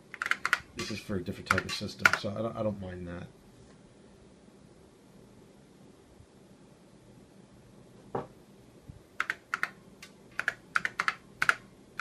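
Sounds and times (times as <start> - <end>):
keyboard key clicks: 10.4 - 11.6.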